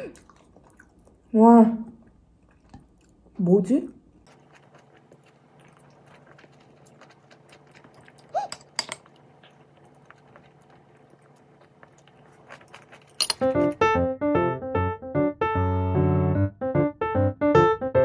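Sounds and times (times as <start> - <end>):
dishes and utensils clicking: 8.5 - 9.2, 12.7 - 13.8.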